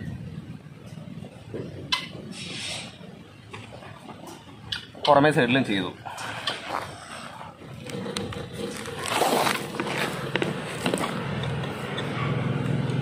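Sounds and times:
camera scraping on dirt: 6.2 - 12.0.

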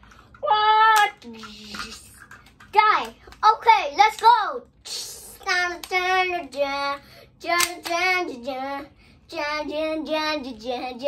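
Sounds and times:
young boy singing: 4.9 - 11.0.

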